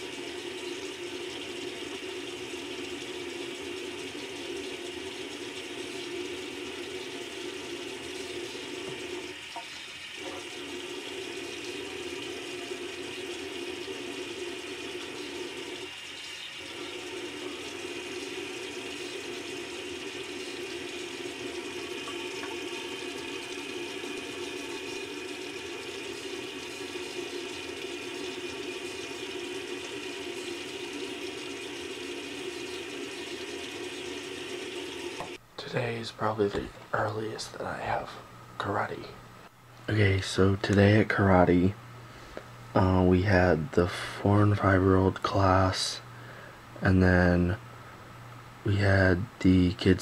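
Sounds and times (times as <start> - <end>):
running water: 0.0 - 35.4.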